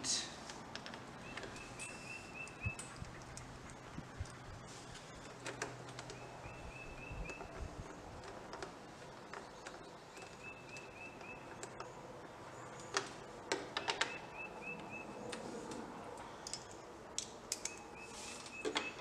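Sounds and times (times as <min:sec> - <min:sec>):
bird chirping: 0:01.2 - 0:05.3, 0:06.0 - 0:07.7, 0:09.1 - 0:13.0, 0:13.8 - 0:15.3, 0:17.6 - 0:19.0.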